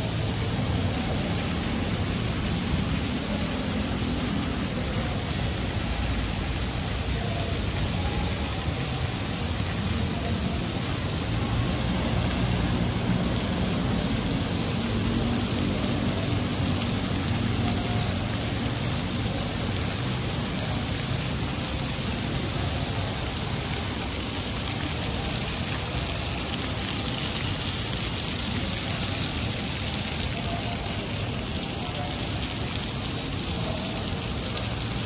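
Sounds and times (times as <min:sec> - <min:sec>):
fountain water splashing on paving: 0:00.0 - 0:35.0
road traffic rumble: 0:00.0 - 0:35.0.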